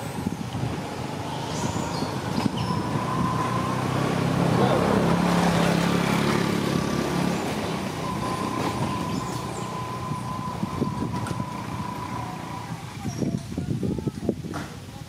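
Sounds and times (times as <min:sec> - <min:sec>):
vehicle engine humming: 0:00.0 - 0:13.6
thin steady high tone: 0:07.9 - 0:13.1.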